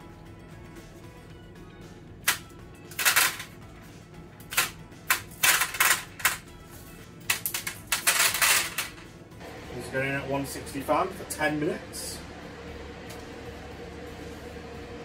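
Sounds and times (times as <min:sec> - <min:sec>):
dried beans rattling into metal ring: 0:02.9 - 0:03.5, 0:04.6 - 0:06.4, 0:07.3 - 0:09.0.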